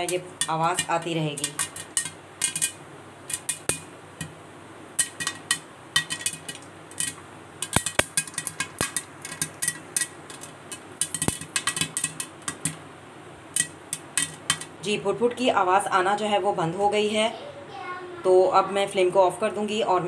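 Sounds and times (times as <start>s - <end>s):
popcorn popping in a pan: 0.0s - 15.5s.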